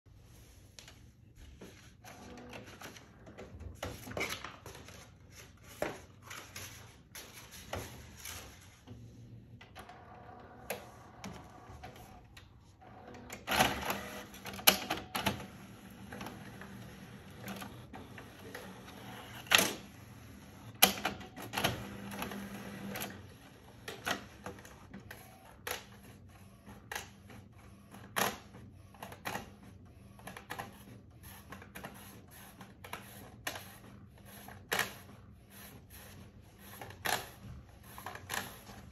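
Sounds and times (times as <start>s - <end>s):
printer motor whirring: 9.3s - 38.9s
printer clicks and clunks: 9.6s - 30.9s.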